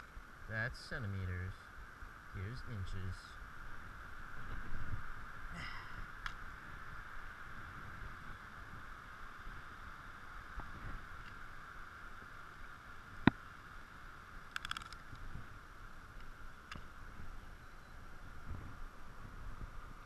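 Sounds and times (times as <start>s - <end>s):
steady high hiss: 0.0s - 20.0s
tape measure clicks: 14.5s - 15.0s
rattle of quick clicks: 14.5s - 15.2s.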